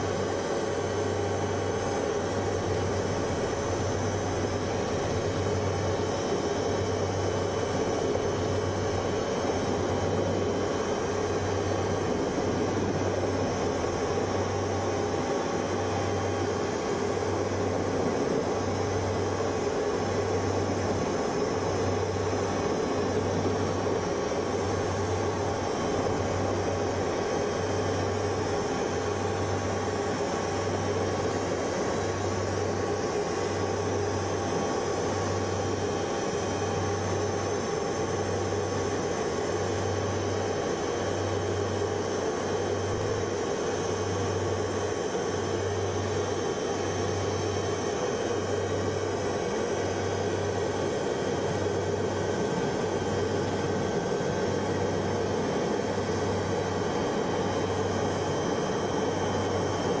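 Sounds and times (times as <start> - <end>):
low pulsing hum: 0.0 - 30.2
helicopter engine and rotor noise: 0.0 - 60.0.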